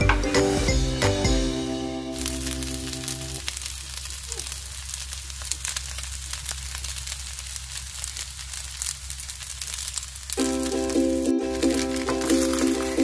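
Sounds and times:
background music: 0.0 - 3.4, 10.4 - 13.0
fried rice sizzling in a pan: 0.4 - 13.0.

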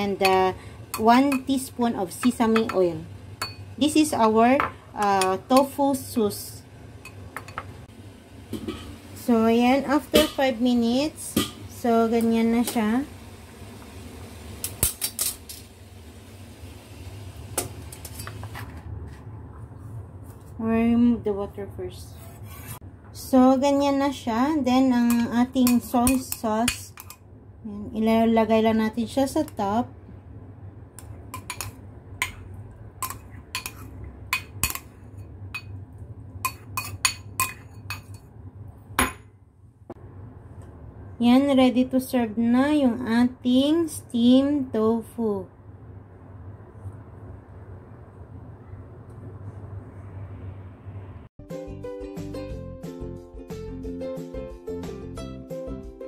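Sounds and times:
low hum: 37.4 - 51.3.

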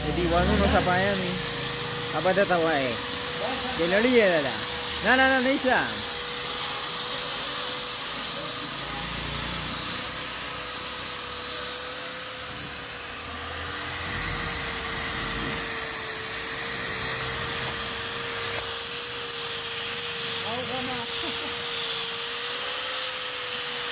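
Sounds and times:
angle grinder sanding wood: 0.0 - 23.9.

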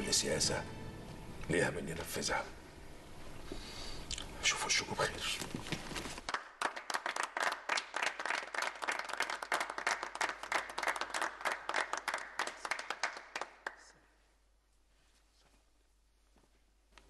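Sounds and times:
people clapping: 6.3 - 14.1.

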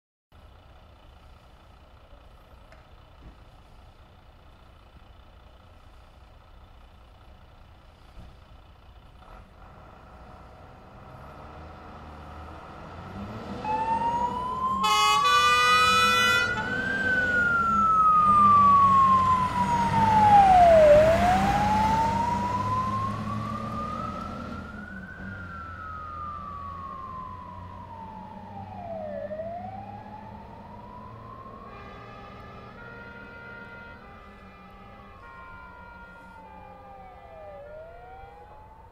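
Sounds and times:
engine rumble: 0.3 - 38.9
fire engine siren wailing: 10.7 - 38.9
horn blast: 14.8 - 16.7.

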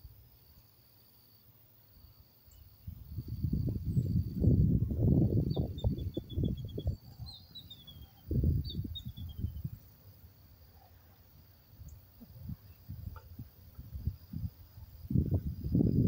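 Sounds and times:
faint high insect tone: 0.0 - 16.0
bird chirping: 2.0 - 10.0.

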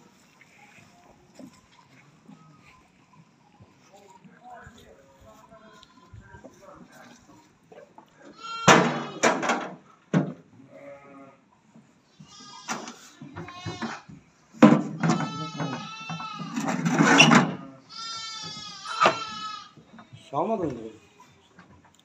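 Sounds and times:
livestock bleating: 8.2 - 9.3, 10.6 - 11.5, 12.2 - 14.1, 15.0 - 16.8, 17.6 - 20.3.

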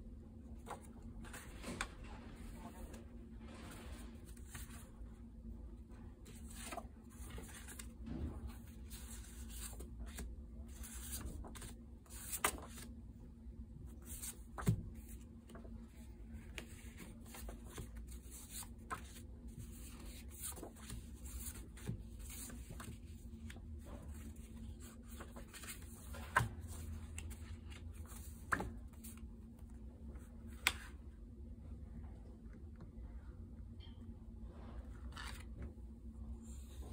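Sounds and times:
paper cards rustling: 0.6 - 4.9, 6.2 - 12.9, 13.9 - 29.3, 35.1 - 35.7.

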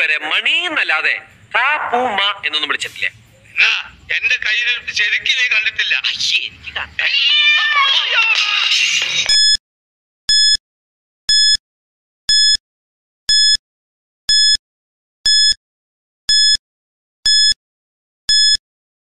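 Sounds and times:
short high-pitched beeps: 9.3 - 9.6, 10.3 - 10.6, 11.3 - 11.6, 12.3 - 12.6, 13.3 - 13.6, 14.3 - 14.6, 15.3 - 15.6, 16.3 - 16.6, 17.3 - 17.6, 18.3 - 18.6.

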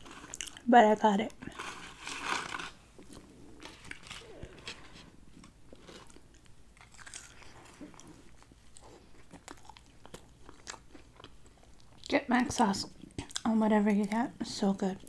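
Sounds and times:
person chewing fries: 0.0 - 0.7, 1.4 - 13.5
biting into a burger: 5.7 - 12.0.

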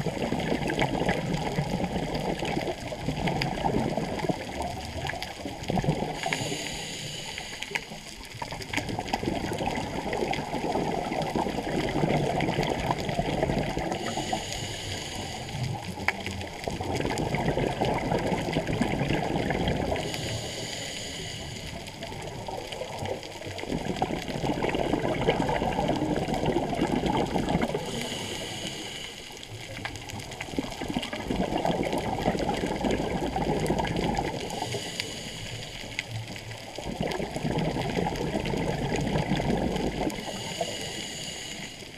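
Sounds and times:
exhaled air bubbling: 0.0 - 41.9
regulator hissing inhalations: 6.2 - 8.0, 14.0 - 15.7, 20.0 - 21.9, 27.8 - 29.4, 34.5 - 36.0, 40.2 - 41.9.

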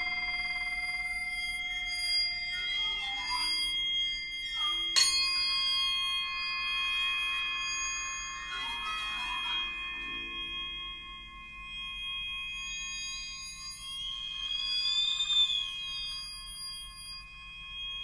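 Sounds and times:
metal percussion ringing: 0.0 - 3.2, 4.8 - 11.0
sliding wavering tones: 0.0 - 18.0
sharp metal strike ringing: 5.0 - 5.6.

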